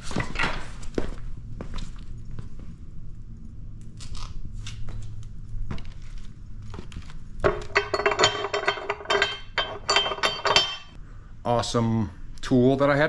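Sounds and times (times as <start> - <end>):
steel plates clinking: 7.5 - 11.0.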